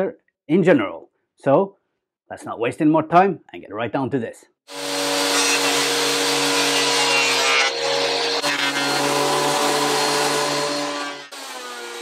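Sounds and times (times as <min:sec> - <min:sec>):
planer cutting wood: 0:04.7 - 0:12.0
planer motor whine: 0:04.7 - 0:12.0.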